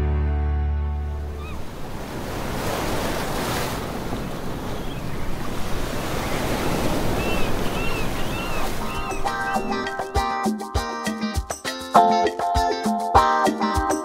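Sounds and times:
ocean surf washing in: 1.0 - 10.3.

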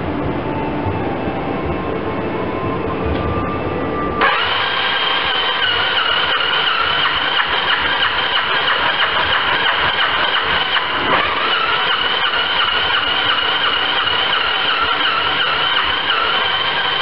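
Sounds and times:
motorcycle engine running: 4.2 - 17.0.

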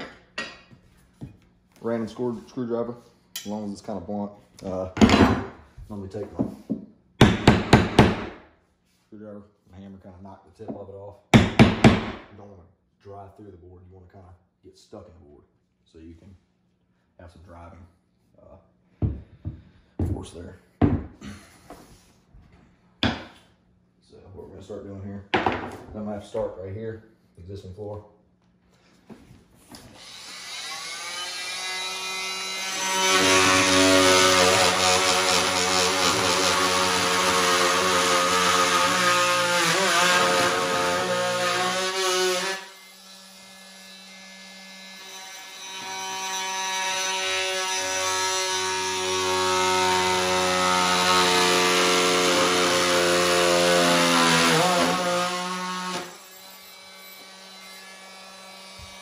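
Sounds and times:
oscillating multi-tool cutting wood: 29.9 - 59.0.

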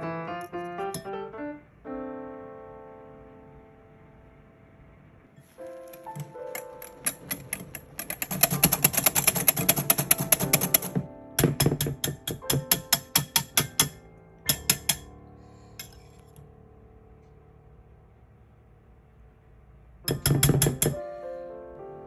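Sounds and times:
whisk clicking against glass bowl: 7.0 - 15.1.

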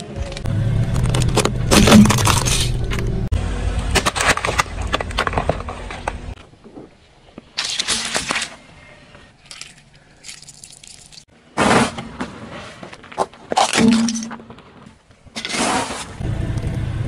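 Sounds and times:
low rumble: 0.0 - 6.4
car tyre crushing objects: 0.7 - 3.1, 3.8 - 6.4.

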